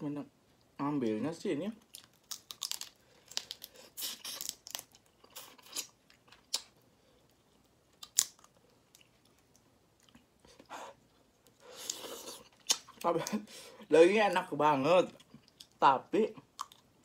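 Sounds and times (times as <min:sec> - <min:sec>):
shrimp shell cracking and tearing: 0:01.8 - 0:06.7, 0:08.0 - 0:08.6
wet chewing and smacking: 0:01.8 - 0:13.4, 0:15.1 - 0:15.8, 0:16.4 - 0:17.0.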